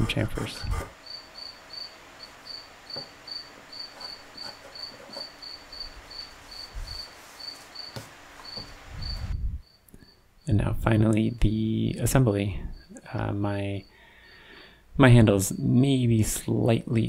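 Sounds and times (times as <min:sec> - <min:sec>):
cricket chirping: 0:00.7 - 0:10.6, 0:12.6 - 0:13.0.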